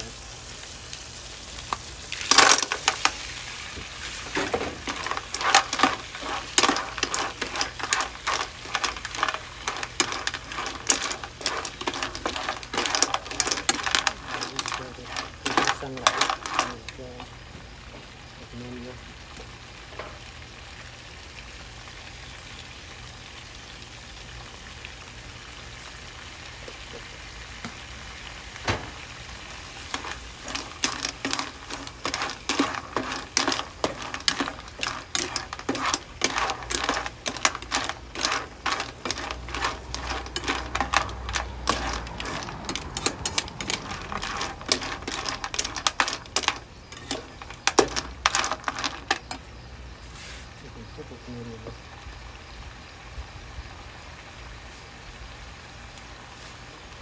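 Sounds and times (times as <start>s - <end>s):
food sizzling in a wok: 0.0s - 57.0s
spatula scraping a pan: 4.2s - 16.9s, 29.9s - 49.6s.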